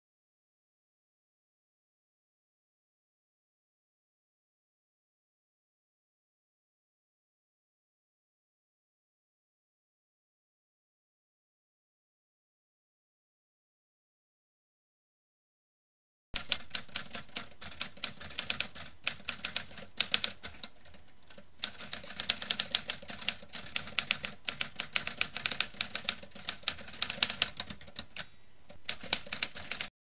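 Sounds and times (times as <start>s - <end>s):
typewriter keys clacking: 16.4s - 28.2s, 28.8s - 29.9s.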